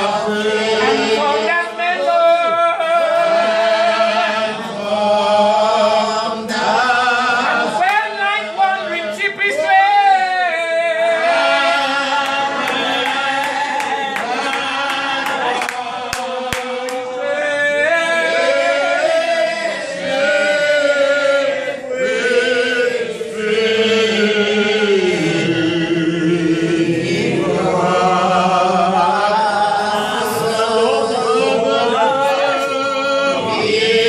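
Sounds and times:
man singing into a microphone: 0.0 - 4.3
voices singing along: 0.0 - 34.0.

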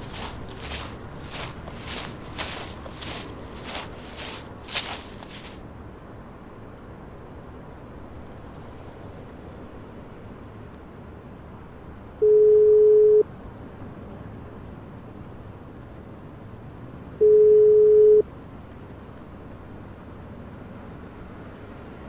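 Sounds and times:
telephone ringback tone beeps: 12.2 - 13.2, 17.2 - 18.2.

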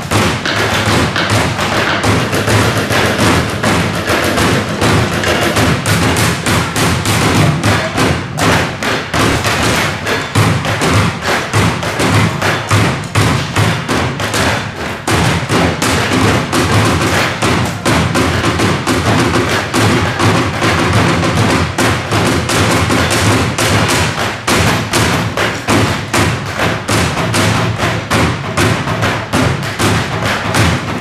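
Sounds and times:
hands drumming on plastic bins: 0.0 - 31.0.

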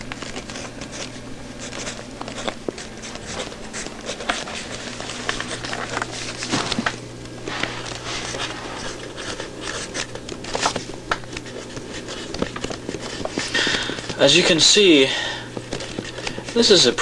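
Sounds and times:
pencil scratching on paper: 0.2 - 6.0, 7.5 - 10.1.

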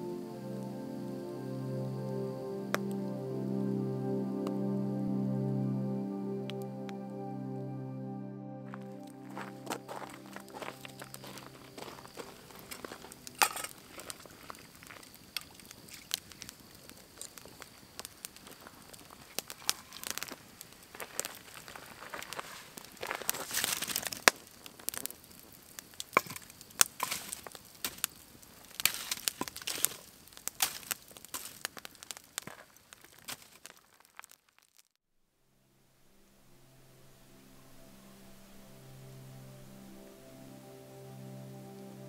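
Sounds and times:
campfire crackling and popping: 8.7 - 35.0.

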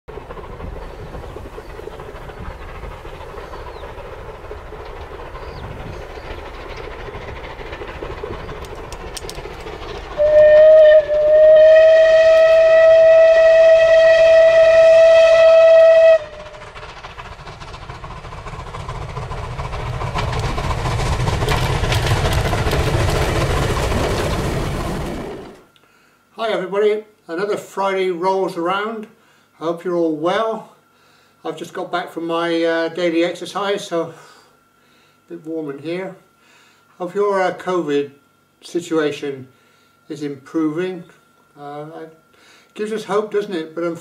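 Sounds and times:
train rumbling: 0.1 - 29.0
steam locomotive whistle: 10.2 - 16.6.

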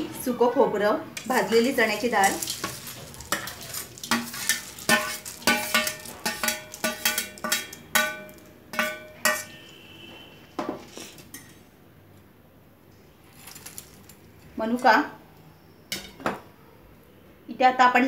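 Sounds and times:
steel bowls clinking on plate: 1.2 - 9.8.

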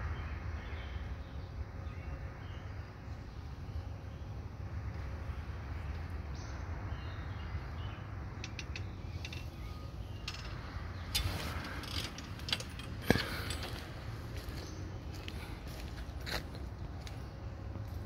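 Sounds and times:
low steady rumble: 0.0 - 18.0
footsteps on dry leaves: 11.2 - 17.2.

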